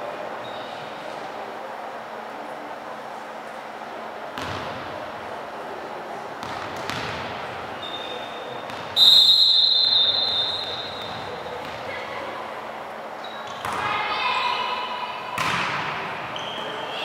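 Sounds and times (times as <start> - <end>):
murmur of voices: 0.0 - 17.0
volleyball bouncing on wooden floor: 6.4 - 7.3, 15.4 - 16.0
referee's whistle blast: 9.0 - 11.0.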